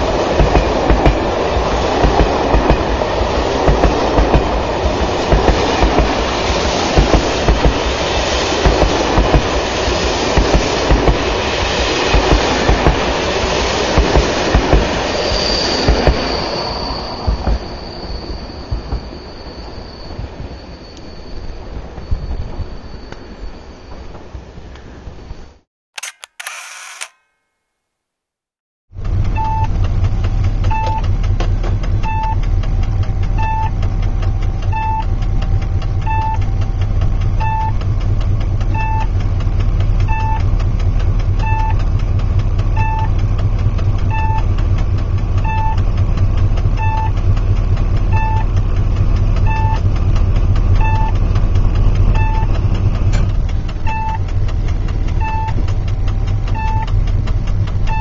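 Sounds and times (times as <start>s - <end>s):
diesel locomotive engine rumbling: 0.0s - 25.5s, 28.9s - 58.0s
short cab beeps: 26.0s - 27.4s, 30.7s - 31.0s, 32.0s - 32.4s, 33.4s - 33.8s, 34.7s - 35.1s, 36.0s - 36.4s, 37.4s - 37.8s, 38.7s - 39.1s, 40.1s - 40.5s, 41.4s - 41.8s, 42.8s - 43.1s, 44.1s - 44.5s, 45.4s - 45.8s, 46.8s - 47.2s, 48.1s - 48.5s, 49.5s - 49.8s, 50.8s - 51.2s, 52.2s - 52.6s, 53.9s - 54.2s, 55.2s - 55.6s, 56.5s - 56.9s.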